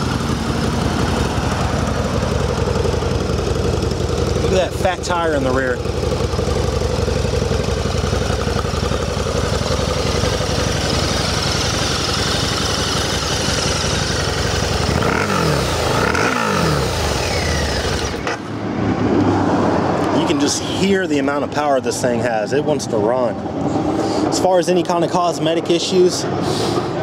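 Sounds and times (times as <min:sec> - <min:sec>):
motorcycle engine running and revving: 0:00.0 - 0:20.5.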